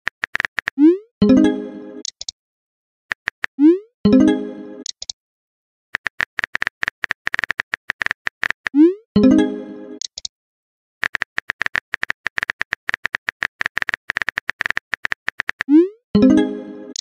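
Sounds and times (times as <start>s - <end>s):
phone keyboard clicks: 0.1s - 0.8s, 2.0s - 2.3s, 4.8s - 5.2s, 6.0s - 8.8s, 10.0s - 10.3s, 11.0s - 15.7s
message tone ringing: 0.8s - 2.0s, 3.6s - 4.8s, 8.8s - 10.0s, 15.8s - 17.0s.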